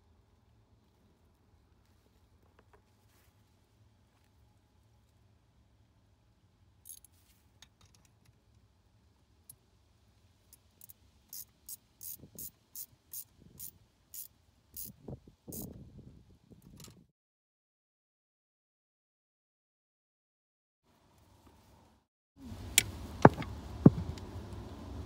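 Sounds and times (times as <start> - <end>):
metal wrench clicks: 6.9 - 7.1, 10.8 - 15.0
dull knocks and scraping: 23.2 - 24.2.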